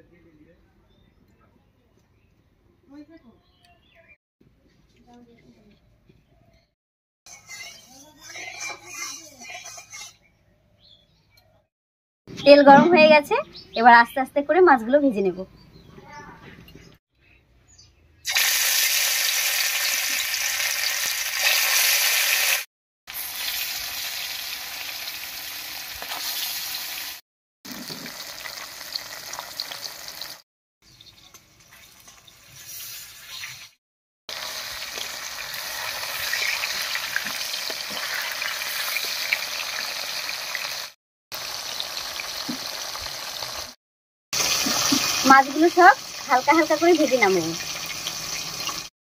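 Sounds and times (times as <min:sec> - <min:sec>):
fish frying in oil: 0:18.3 - 0:30.4, 0:31.0 - 0:43.8, 0:44.4 - 0:48.9.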